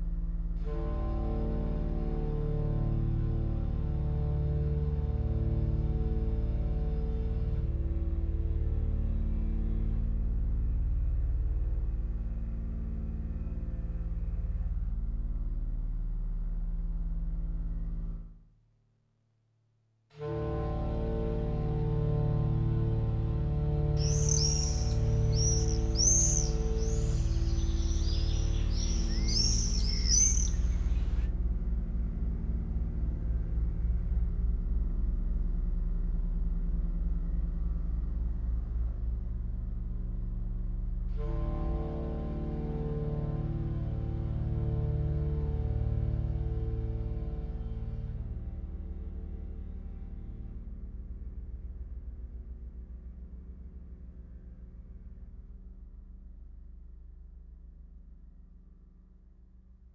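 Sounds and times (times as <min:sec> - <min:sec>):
low droning hum: 0:20.6 - 0:42.8
low sustained drone: 0:20.9 - 0:31.7
high bird-like chirps: 0:24.0 - 0:31.1.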